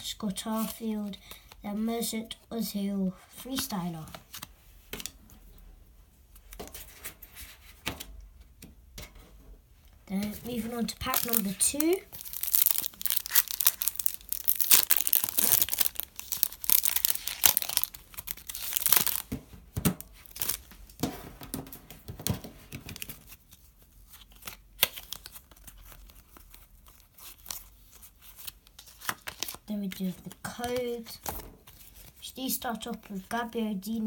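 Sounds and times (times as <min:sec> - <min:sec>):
foil packet tearing and crinkling: 0:10.4 - 0:19.3, 0:20.1 - 0:20.7.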